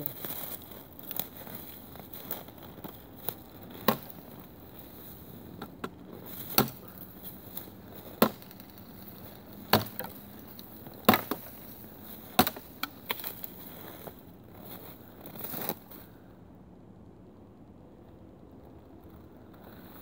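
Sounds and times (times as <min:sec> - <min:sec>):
wood cracking: 0:00.0 - 0:16.0
blade striking wood: 0:03.7 - 0:04.2, 0:05.8 - 0:06.8, 0:08.0 - 0:08.7, 0:09.7 - 0:10.2, 0:11.0 - 0:11.6, 0:12.3 - 0:13.3.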